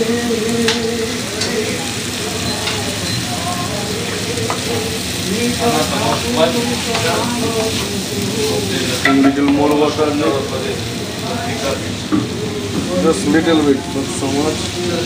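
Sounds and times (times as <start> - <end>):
vegetables sizzling in a frying pan: 0.0 - 15.0.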